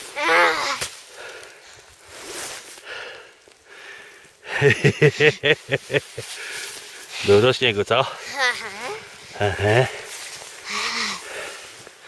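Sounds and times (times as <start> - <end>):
rustle of snow and clothing: 0.0 - 12.0
heavy breathing: 1.1 - 2.2, 2.8 - 5.5, 6.2 - 12.0.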